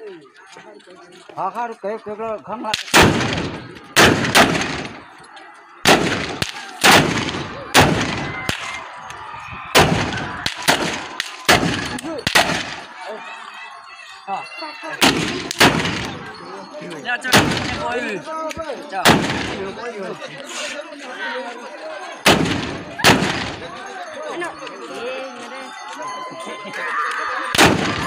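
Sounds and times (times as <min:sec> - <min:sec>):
gunshots with echo: 0:02.8 - 0:05.0, 0:05.8 - 0:08.7, 0:09.8 - 0:12.9, 0:15.0 - 0:16.2, 0:17.3 - 0:17.8, 0:19.0 - 0:19.6, 0:22.2 - 0:23.6, 0:27.6 - 0:28.0.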